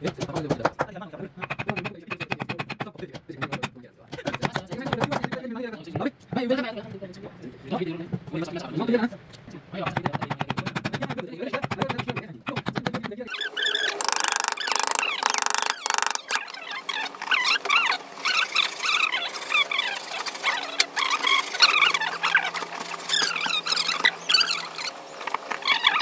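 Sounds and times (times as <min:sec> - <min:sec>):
chisel cutting wood: 0:09.8 - 0:26.0
rapid buzzing rattle: 0:13.3 - 0:25.4
high squeaks: 0:13.3 - 0:26.0.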